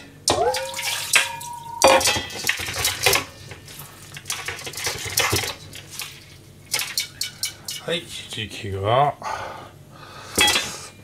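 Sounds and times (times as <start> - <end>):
metal bowls clattering in sink: 0.0 - 8.0, 10.4 - 10.8
metal bowl ringing: 0.3 - 2.4.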